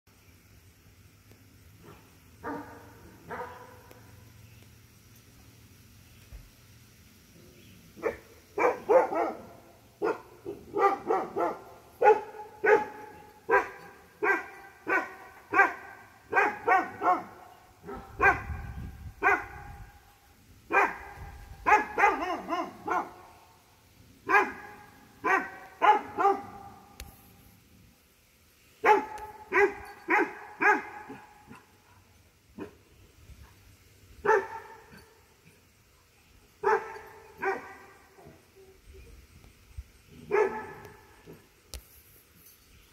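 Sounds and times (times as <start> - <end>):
dog barking: 1.8 - 4.0, 8.0 - 18.6, 19.2 - 19.8, 20.7 - 23.2, 24.3 - 26.8, 28.8 - 32.8, 34.2 - 35.0, 36.6 - 37.9, 40.2 - 41.4.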